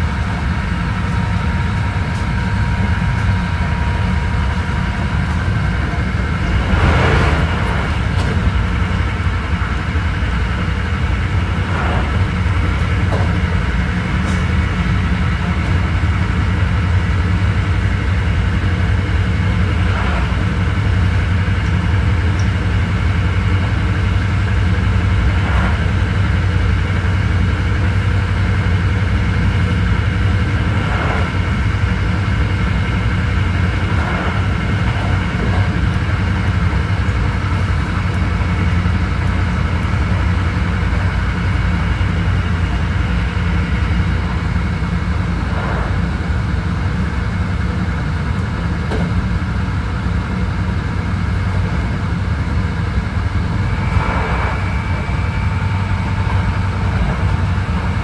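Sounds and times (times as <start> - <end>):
train wheels rumbling on rails: 0.0 - 58.0
steady tone: 53.4 - 58.0.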